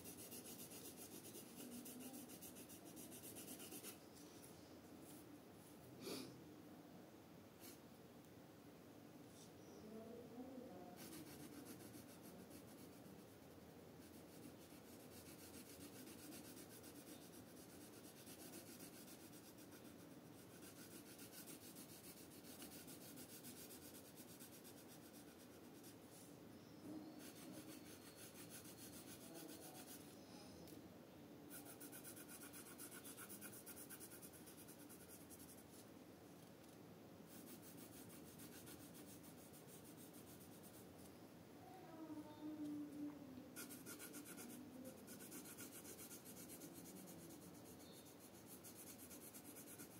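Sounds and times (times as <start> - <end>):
pencil scratching on paper: 0.0 - 4.0, 11.0 - 26.0, 27.1 - 30.2, 31.5 - 35.8, 37.3 - 40.9, 43.6 - 49.9.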